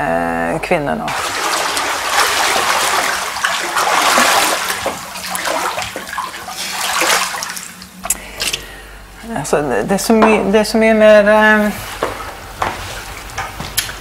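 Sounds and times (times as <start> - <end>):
pool water sloshing and splashing: 1.1 - 8.6.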